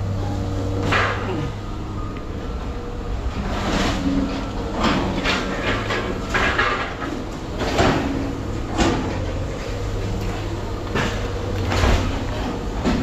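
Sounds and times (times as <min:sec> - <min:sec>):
machinery low hum: 0:00.0 - 0:13.0
metal clanks and bangs: 0:00.7 - 0:01.7, 0:02.8 - 0:13.0.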